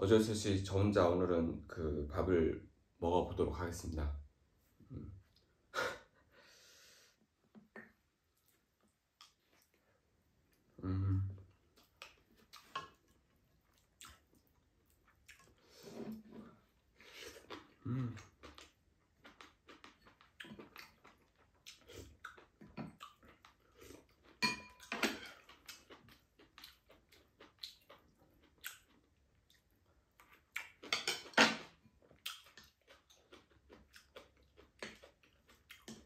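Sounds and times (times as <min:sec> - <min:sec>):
person chewing: 0:07.8 - 0:31.3, 0:31.9 - 0:36.0.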